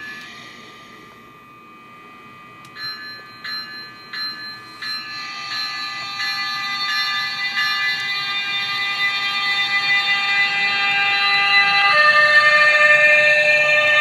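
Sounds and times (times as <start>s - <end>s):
model train humming: 0.0s - 14.0s
bell ringing: 2.7s - 9.9s.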